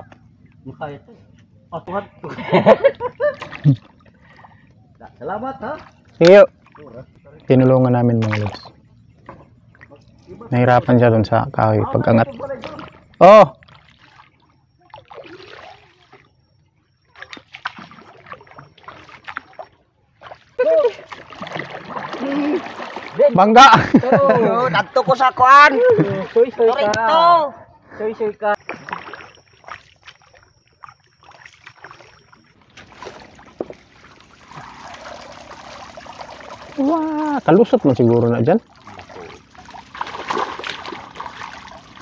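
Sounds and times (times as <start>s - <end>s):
paddle splashing water: 3.1s - 4.7s, 5.6s - 7.2s, 8.2s - 10.4s, 12.4s - 16.4s, 17.0s - 24.0s, 25.0s - 26.9s, 28.6s - 42.0s
rush of water: 20.8s - 23.5s.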